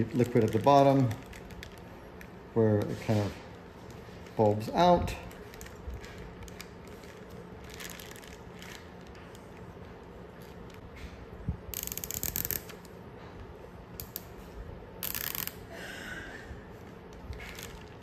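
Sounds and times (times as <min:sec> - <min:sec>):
plastic bag handling: 0:00.0 - 0:11.2
faint steady hum: 0:00.0 - 0:18.0
zip tie ratcheting tight: 0:11.7 - 0:12.9, 0:15.0 - 0:15.6.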